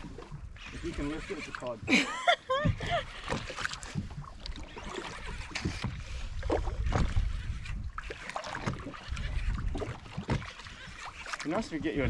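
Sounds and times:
water lapping against boat hull: 0.0 - 12.0
wind buffeting microphone: 2.5 - 11.0.

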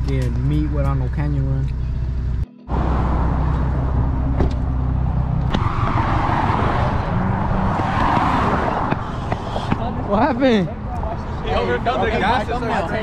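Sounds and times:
car engine rumbling: 0.0 - 13.0
traffic passing: 0.0 - 13.0.

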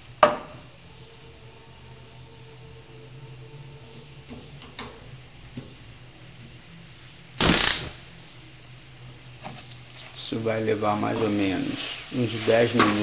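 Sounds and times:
faint low hum: 0.0 - 12.5
loud burst of hiss: 7.4 - 8.2, 11.0 - 13.0.

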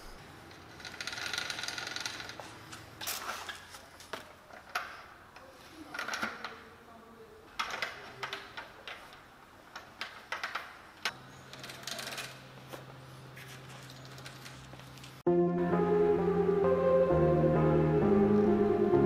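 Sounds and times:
small clicks and scraping: 13.5 - 15.2.

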